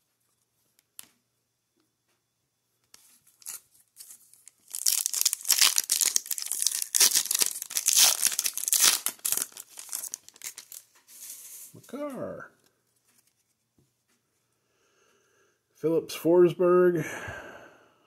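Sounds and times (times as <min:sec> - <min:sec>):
foil wrapper crinkling and tearing: 0:03.3 - 0:11.0.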